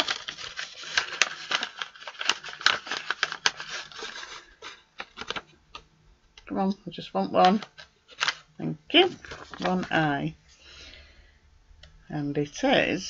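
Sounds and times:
paper envelope rustling: 0.0 - 5.9, 7.4 - 10.1.

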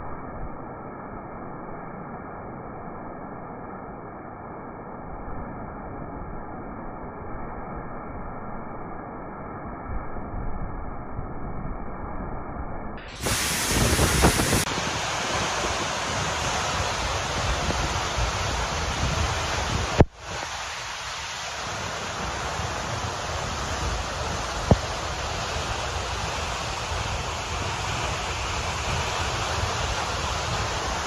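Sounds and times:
waterfall crashing: 13.1 - 31.0.

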